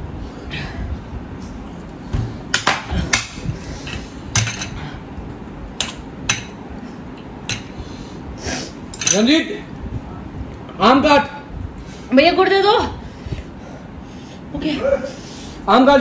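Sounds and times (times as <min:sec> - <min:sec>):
dishes and utensils clinking: 0:07.4 - 0:07.8, 0:08.9 - 0:09.3.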